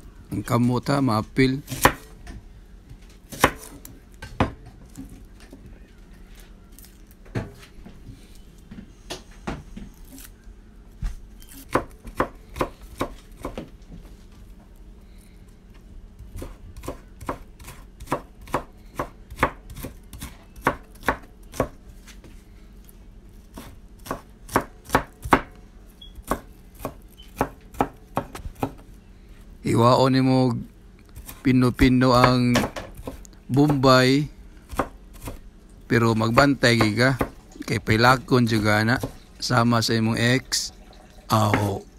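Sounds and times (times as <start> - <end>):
knife chopping on wooden board: 1.7 - 2.1, 3.3 - 5.0, 11.6 - 13.7, 16.4 - 21.8, 23.5 - 25.6, 26.2 - 28.9, 31.2 - 33.9, 34.7 - 35.4, 36.3 - 37.4, 41.5 - 41.8.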